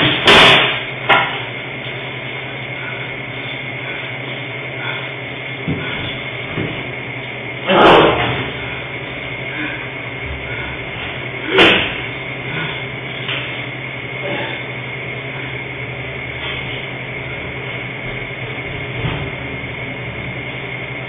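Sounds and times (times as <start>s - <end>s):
electrical hum: 0.0s - 21.0s.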